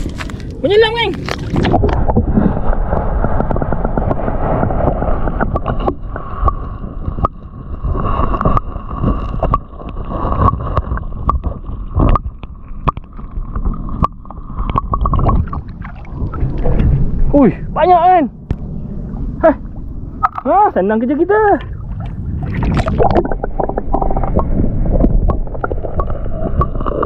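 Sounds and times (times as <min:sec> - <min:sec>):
muffled underwater river gurgling: 0:01.2 - 0:27.0
steady whine: 0:15.0 - 0:27.0.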